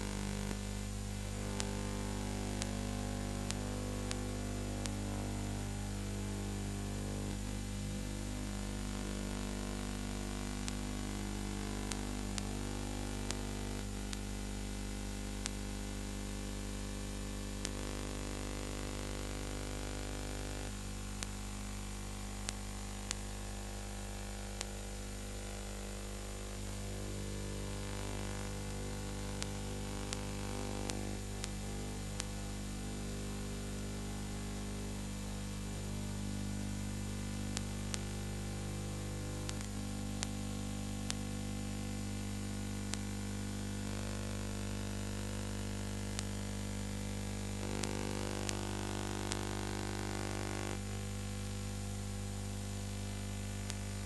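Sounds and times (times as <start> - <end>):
electrical mains hum: 0.0 - 54.0
background hiss: 1.2 - 13.8.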